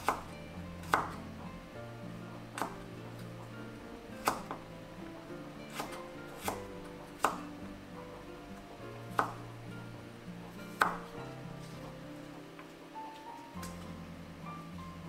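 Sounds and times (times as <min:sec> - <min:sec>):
knife chopping on wooden board: 0:00.0 - 0:01.2, 0:02.5 - 0:02.9, 0:04.2 - 0:04.6, 0:05.7 - 0:07.6, 0:09.1 - 0:09.5, 0:10.6 - 0:11.9
soft background music: 0:00.0 - 0:15.0.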